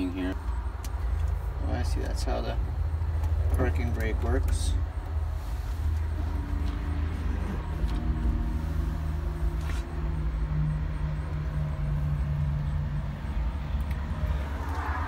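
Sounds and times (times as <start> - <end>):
engine idling hum: 0.0 - 15.0.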